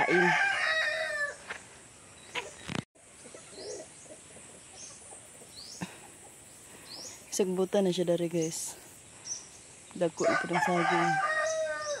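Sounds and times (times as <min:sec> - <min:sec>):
bird chirps: 0:02.0 - 0:10.3.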